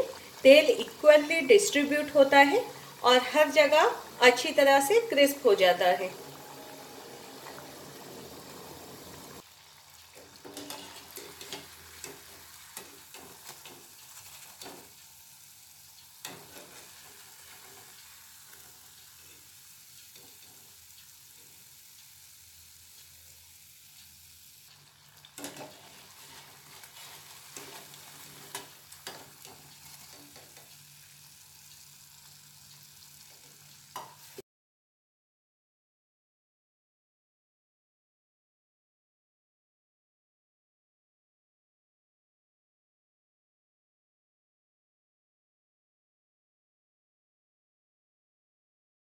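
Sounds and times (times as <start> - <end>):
pastries sizzling in hot oil: 0.0 - 34.4.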